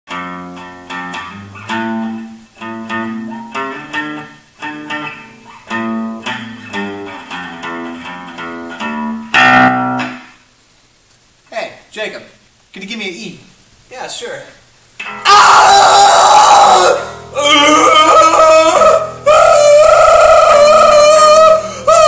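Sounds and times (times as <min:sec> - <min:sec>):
plucked acoustic bass guitar: 0:05.8 - 0:10.2.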